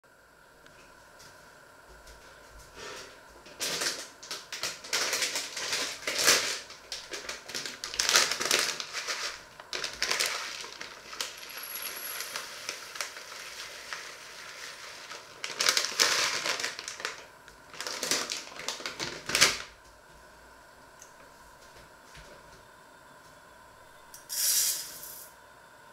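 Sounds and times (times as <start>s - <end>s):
packet crinkling: 3.6s - 19.8s
dry grains pouring into mug: 9.8s - 15.0s, 24.3s - 25.3s.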